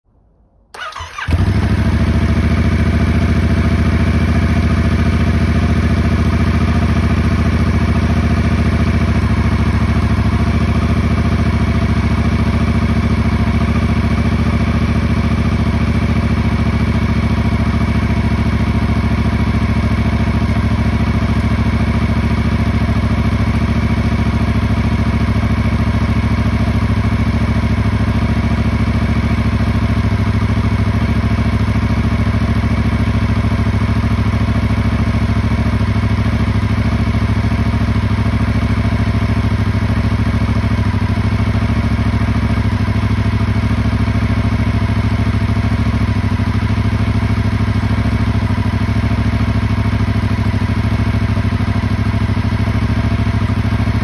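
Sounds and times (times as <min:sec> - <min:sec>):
motorcycle engine idling: 0:00.7 - 0:54.0
motorcycle engine cranking: 0:00.8 - 0:02.0.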